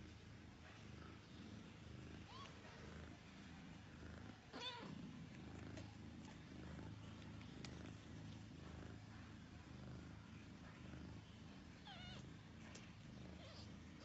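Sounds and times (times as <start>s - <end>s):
cats purring: 0.0s - 14.0s.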